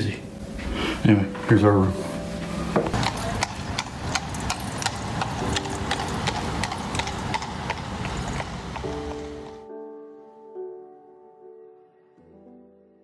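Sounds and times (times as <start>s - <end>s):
piano music: 0.0s - 13.0s
street traffic: 1.4s - 9.6s
hooves clip-clopping on asphalt: 2.8s - 9.6s.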